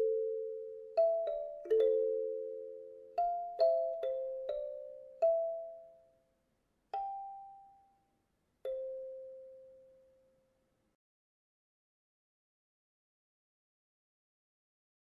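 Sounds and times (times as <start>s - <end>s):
kalimba notes plucked: 0.0s - 6.0s, 7.0s - 7.8s, 8.7s - 9.8s.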